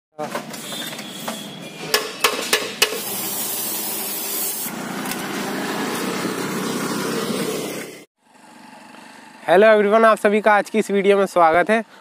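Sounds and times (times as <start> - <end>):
spray gun hissing: 2.9 - 4.7.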